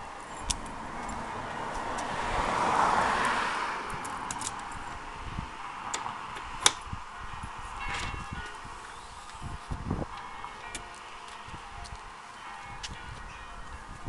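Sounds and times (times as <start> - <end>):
car passing by: 0.6 - 6.3.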